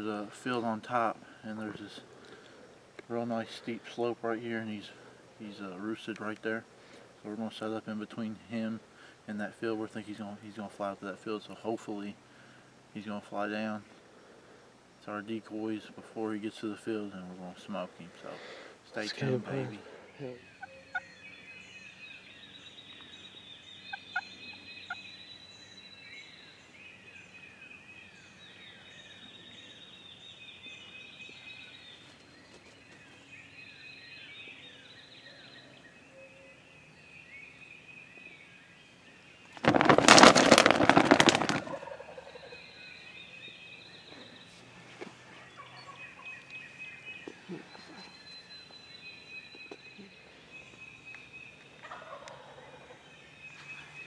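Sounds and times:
songbirds chirping: 0.0 - 54.0
turkey gobbling: 41.7 - 42.6, 51.8 - 53.0.

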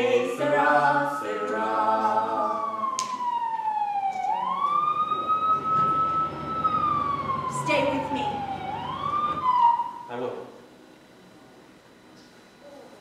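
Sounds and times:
choir singing: 0.0 - 3.0
siren wailing: 0.0 - 10.2.

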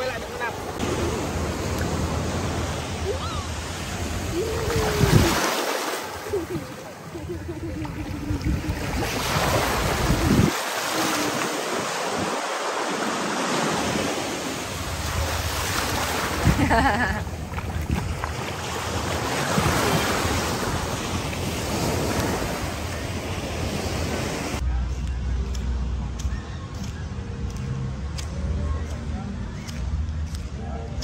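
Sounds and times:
small waves breaking on beach: 0.0 - 24.6.

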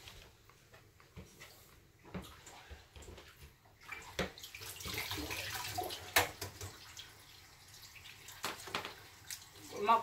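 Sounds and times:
tap running into sink: 4.1 - 6.9, 8.4 - 9.0.

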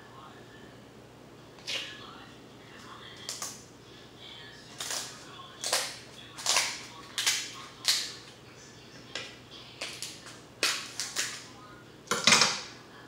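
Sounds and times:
crab shells cracking: 4.8 - 8.2, 9.8 - 11.4.

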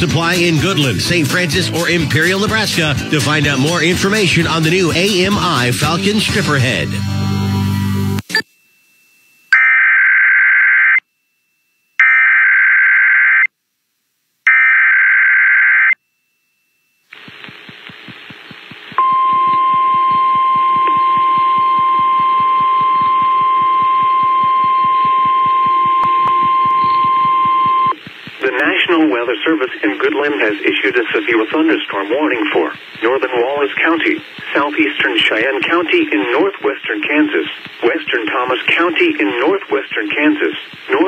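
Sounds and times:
buzzing radio static: 0.0 - 7.0, 17.1 - 41.0
screechy digital data bursts: 18.8 - 28.4
steady single-pitch alert tone: 19.0 - 28.0.

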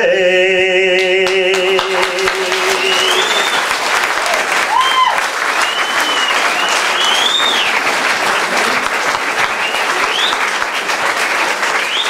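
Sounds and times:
audience applauding: 1.2 - 12.0
short whistles: 5.6 - 7.7.

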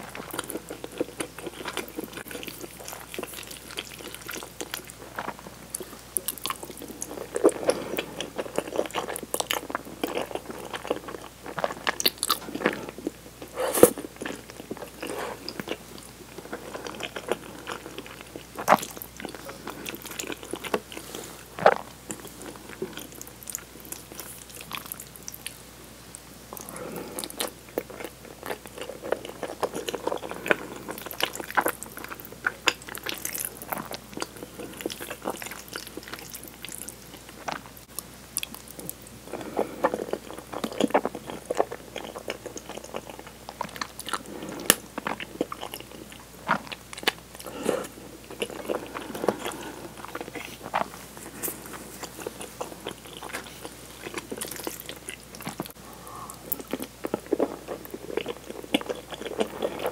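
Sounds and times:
wet chewing and slurping noodles: 0.0 - 25.6, 26.6 - 37.8, 38.4 - 59.9.

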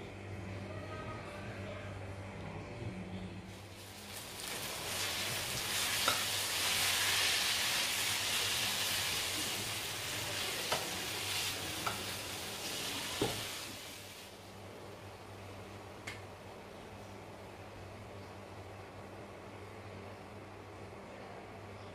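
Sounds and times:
noodles sizzling in a wok: 3.5 - 14.4.

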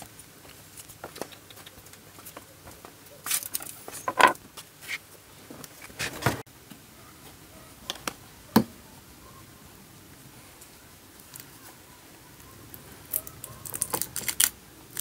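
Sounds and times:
objects being handled: 3.3 - 5.0, 12.7 - 15.0.

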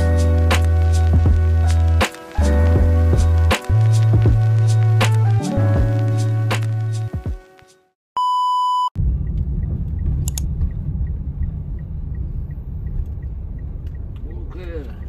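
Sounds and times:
electronic beep: 8.2 - 8.9
car rumble inside cabin: 9.0 - 15.0
faint regular ticking: 9.6 - 15.0.

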